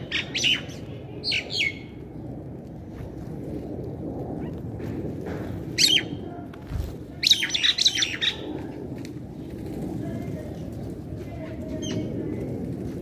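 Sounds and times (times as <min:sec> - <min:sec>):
birds chirping and squawking: 0:00.0 - 0:01.9, 0:05.8 - 0:06.2, 0:07.2 - 0:08.6.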